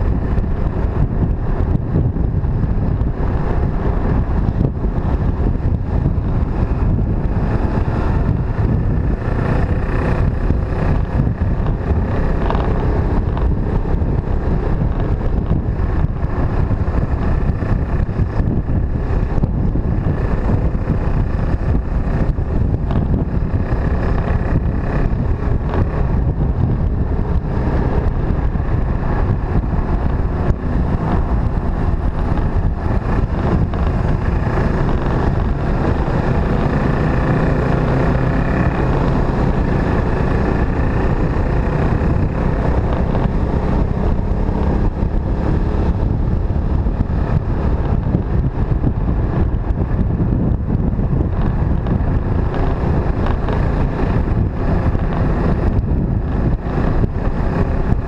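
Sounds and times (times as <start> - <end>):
motorcycle engine running: 0.0 - 58.0
wind rushing over microphone: 0.0 - 58.0.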